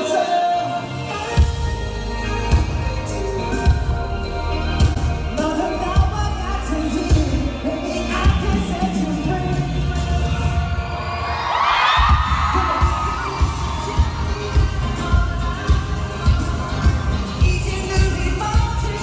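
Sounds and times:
live pop music over sound system: 0.0s - 19.0s
crowd screaming: 10.4s - 17.5s.

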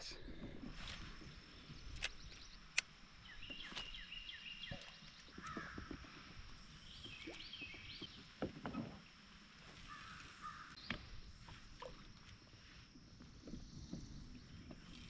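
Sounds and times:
faint outdoor ambience: 0.0s - 15.0s
wild birds calling and singing: 1.5s - 8.9s
sharp clicks: 1.9s - 3.0s.

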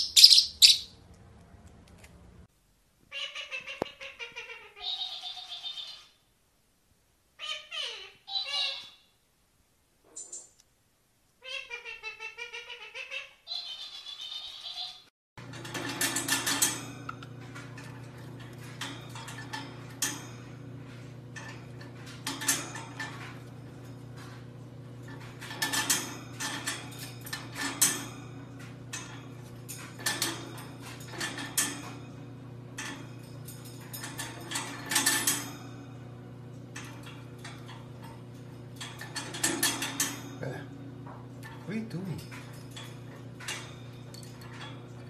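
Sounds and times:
light clicking and clattering: 15.5s - 32.1s, 36.5s - 45.0s.

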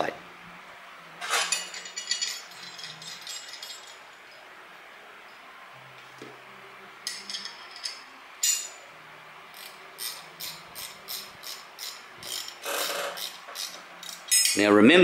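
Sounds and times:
metal scraping: 1.2s - 4.1s
spanner ratchet clicks: 9.6s - 14.6s.

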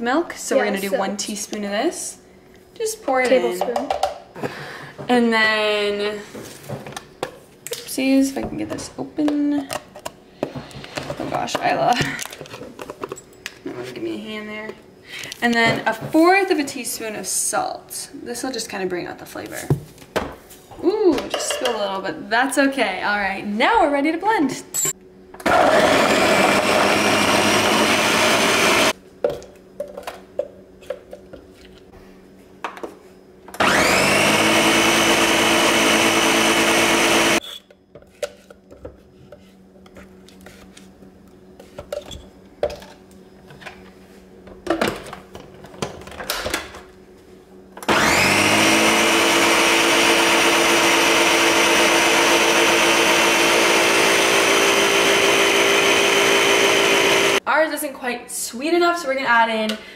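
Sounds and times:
blender crushing frozen fruit: 25.4s - 28.9s, 33.6s - 37.4s, 47.8s - 57.4s.

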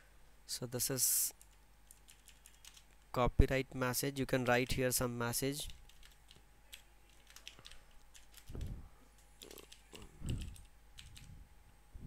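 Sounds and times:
soft low thumps: 8.5s - 8.9s.

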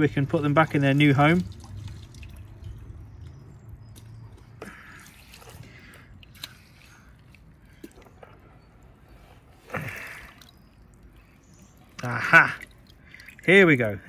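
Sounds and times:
hand splashing water in bucket: 0.4s - 3.0s.

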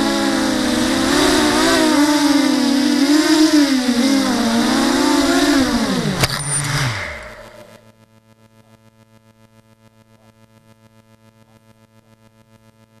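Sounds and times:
pulsing electrical buzz: 0.0s - 8.0s.

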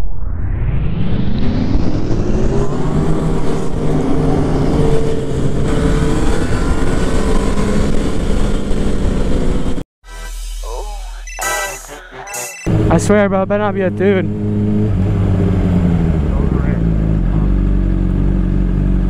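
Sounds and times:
motorcycle engine accelerating: 1.2s - 9.8s, 12.7s - 19.0s.

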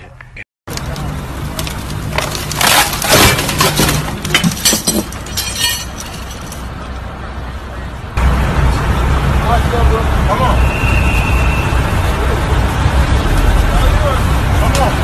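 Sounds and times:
broken glass clinking: 2.6s - 6.7s.

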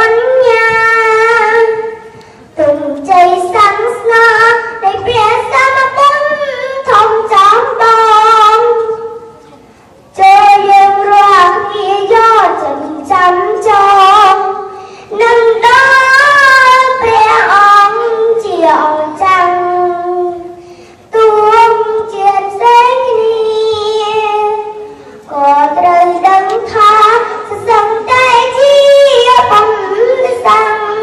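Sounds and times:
child chanting into a microphone: 0.0s - 9.5s, 10.1s - 31.0s.

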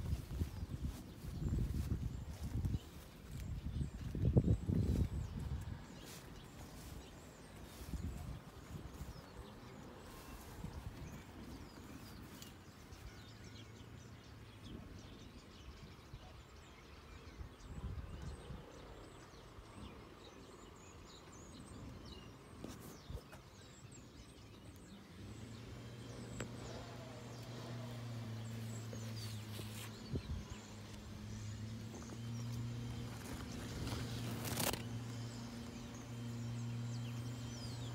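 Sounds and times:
low rumble on microphone: 0.0s - 20.1s, 20.7s - 37.9s
steady low hum: 25.4s - 37.9s.

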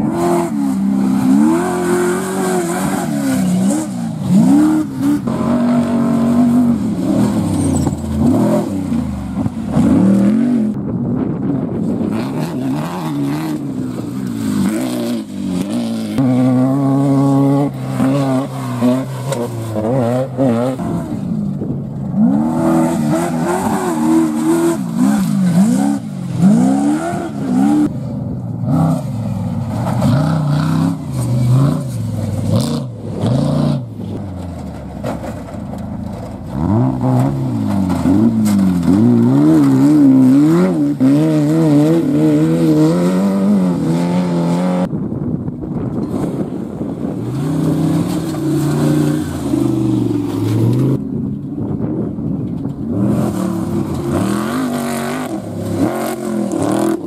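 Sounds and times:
race vehicles revving past: 52.9s - 57.0s.

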